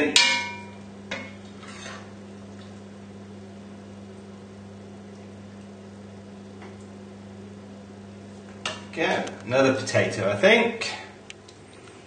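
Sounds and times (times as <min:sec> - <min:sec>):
steady low hum: 0:00.0 - 0:12.0
metal ladle clinking: 0:00.2 - 0:01.3.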